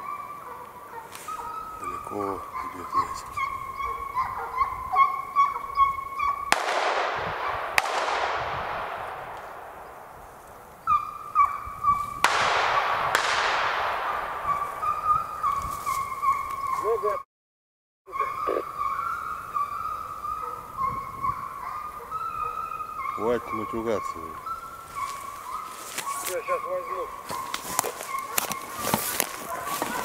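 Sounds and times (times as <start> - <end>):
hounds baying: 0.0 - 17.2, 18.1 - 30.0
echoing shotgun shots: 6.5 - 11.6, 12.2 - 16.0.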